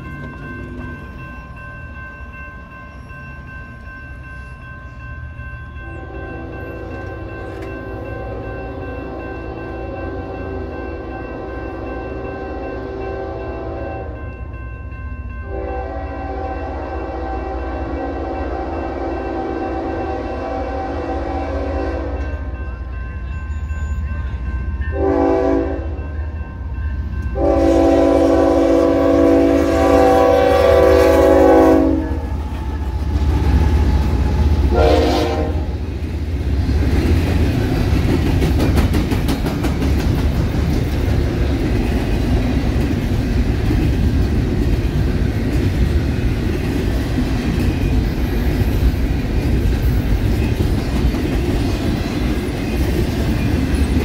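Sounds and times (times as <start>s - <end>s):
freight train rumbling past: 0.0s - 54.0s
locomotive air horn: 6.0s - 7.3s, 8.0s - 14.2s, 15.5s - 22.5s, 24.9s - 26.0s, 27.4s - 32.6s, 34.6s - 35.9s
wheels clacking over rail joints: 36.0s - 54.0s.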